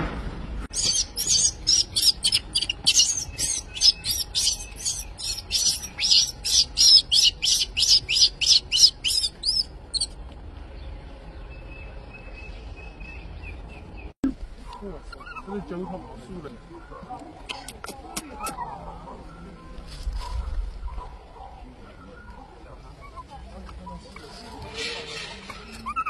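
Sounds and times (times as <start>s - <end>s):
baby monkey squealing: 0.7s - 10.1s, 15.1s - 15.5s, 24.8s - 26.0s.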